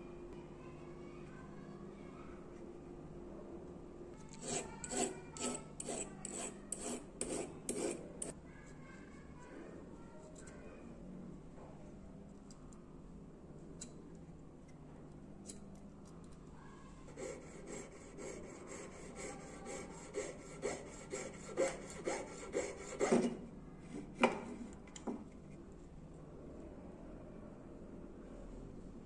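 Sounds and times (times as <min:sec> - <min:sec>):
saw cutting metal: 0:04.3 - 0:08.3, 0:17.1 - 0:23.3.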